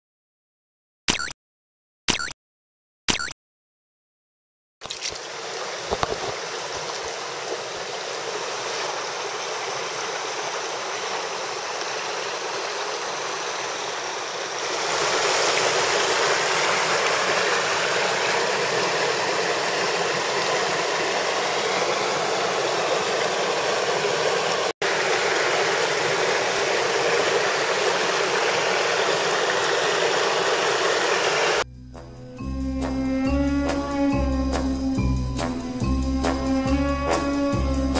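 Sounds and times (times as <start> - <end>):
water rushing over rocks: 4.8 - 31.6.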